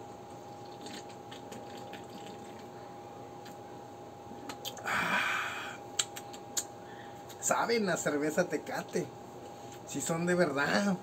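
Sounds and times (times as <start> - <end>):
faint steady hum: 0.0 - 11.0
man swallowing beer: 0.6 - 2.7
breathy exhale: 4.8 - 5.8.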